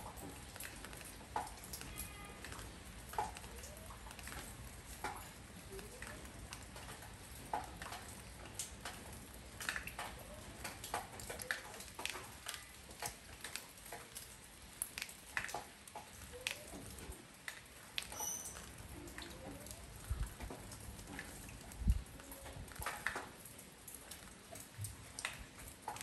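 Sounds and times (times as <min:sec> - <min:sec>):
raindrops tapping on a porch: 0:00.0 - 0:26.0
soft steady rain hiss: 0:00.0 - 0:26.0.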